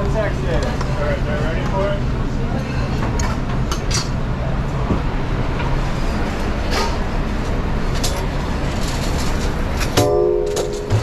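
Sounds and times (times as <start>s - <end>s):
kitchen exhaust hood roar: 0.0s - 11.0s
utensils and pans clattering: 8.0s - 11.0s.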